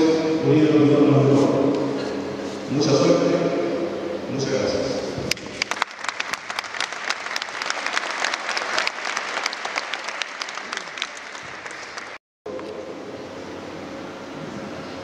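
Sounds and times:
audience applauding: 0:05.5 - 0:12.2.

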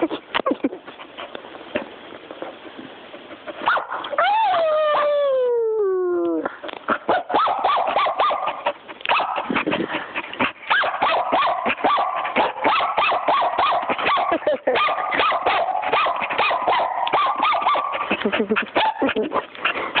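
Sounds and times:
puppy yapping: 0:07.0 - 0:09.5, 0:10.7 - 0:18.0.

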